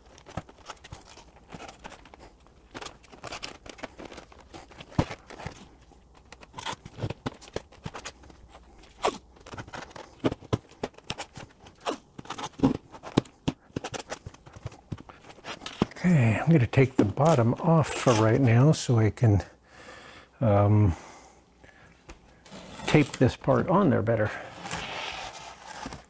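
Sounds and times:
foam scraping and creaking: 22.4s - 26.0s.

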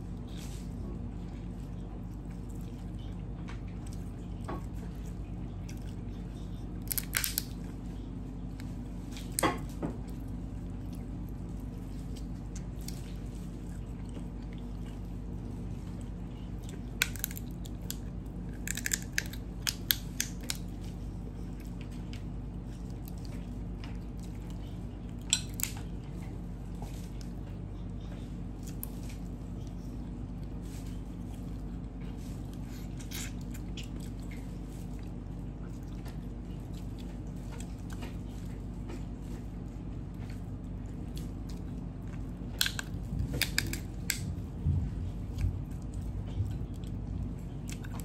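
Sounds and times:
steady low hum: 0.0s - 48.0s
crab shell cracking: 6.8s - 7.6s, 16.9s - 20.7s, 42.5s - 44.3s.

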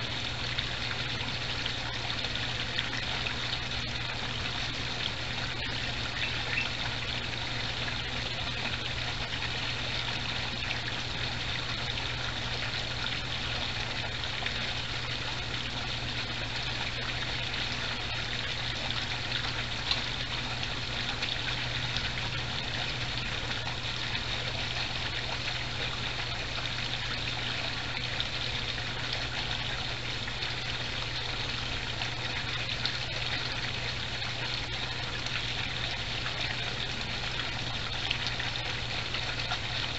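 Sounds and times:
low steady hum: 0.0s - 39.9s
water trickling into pond: 0.0s - 39.9s.

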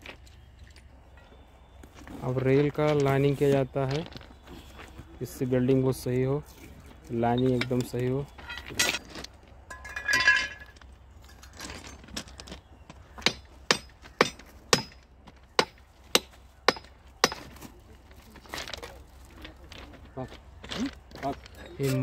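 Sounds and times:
hand hammer striking steel rail: 13.2s - 15.0s.

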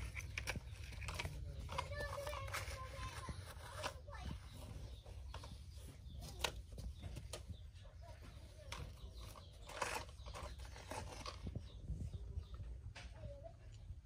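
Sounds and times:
plastic toy trucks clicking: 0.0s - 4.2s, 8.7s - 11.5s
toy truck scraping in sand: 8.7s - 11.8s.

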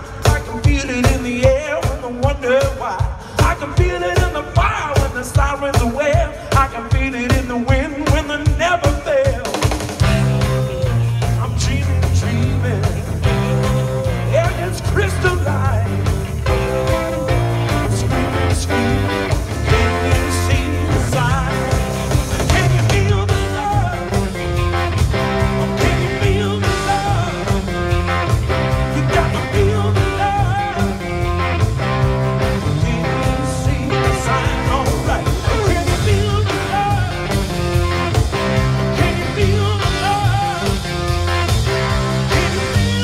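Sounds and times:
drum kit: 0.0s - 43.0s
electric guitars: 0.0s - 43.0s
person singing: 11.2s - 24.4s, 25.6s - 27.8s, 28.8s - 31.2s, 32.5s - 37.4s, 38.8s - 41.1s, 42.1s - 43.0s.

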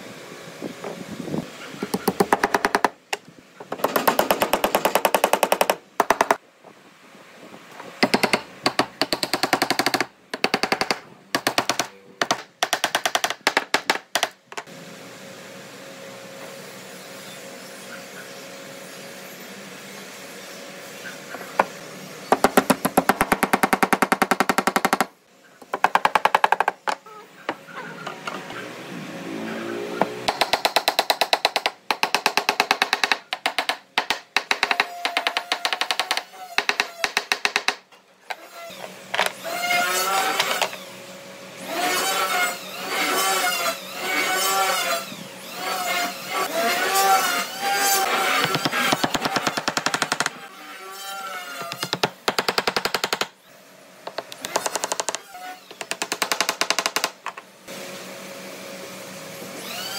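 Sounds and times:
woodworking power tool rattling: 1.8s - 6.4s, 21.3s - 28.7s, 30.0s - 40.9s, 41.6s - 50.5s, 54.1s - 57.5s.

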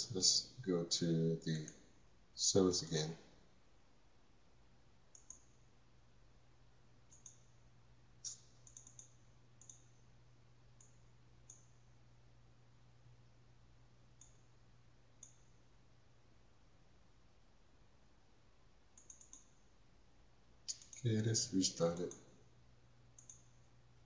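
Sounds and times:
faint low hum: 0.0s - 24.0s
computer mouse clicks: 5.1s - 5.7s, 7.0s - 7.6s, 8.2s - 10.1s, 10.7s - 11.9s, 14.2s - 14.5s, 15.2s - 15.6s, 18.9s - 19.7s, 20.7s - 21.1s, 23.1s - 23.8s.

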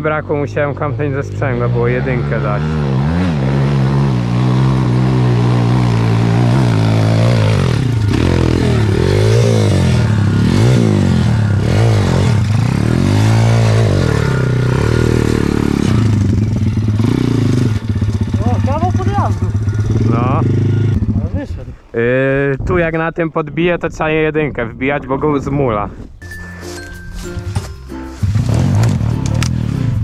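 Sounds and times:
motorbike engine revving: 0.7s - 21.4s, 28.2s - 30.0s.

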